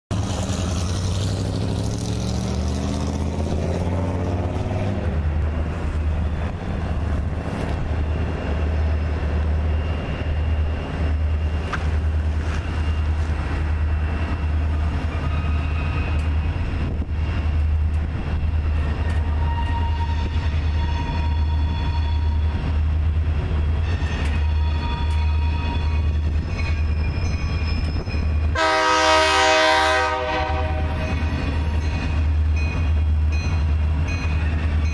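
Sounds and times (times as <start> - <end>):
diesel locomotives rumbling: 0.1 - 34.9
locomotive air horn: 19.3 - 22.5, 23.9 - 26.1, 28.5 - 31.2.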